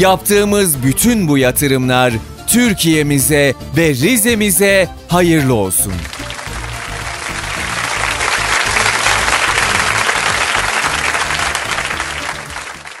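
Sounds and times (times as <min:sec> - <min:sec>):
background music: 0:00.0 - 0:13.0
audience applauding: 0:06.0 - 0:13.0.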